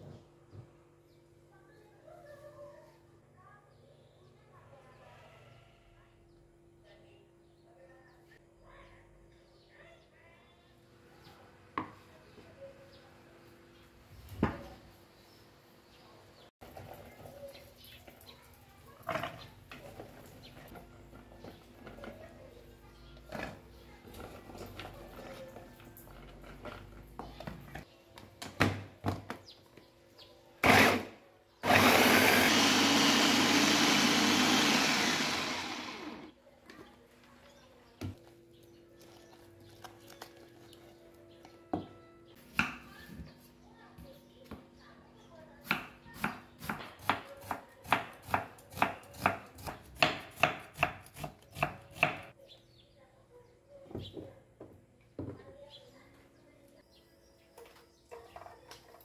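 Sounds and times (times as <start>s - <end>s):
electric food chopper running: 30.6s - 36.3s.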